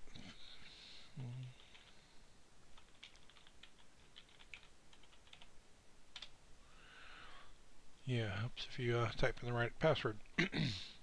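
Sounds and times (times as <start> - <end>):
man murmuring: 1.1 - 1.6.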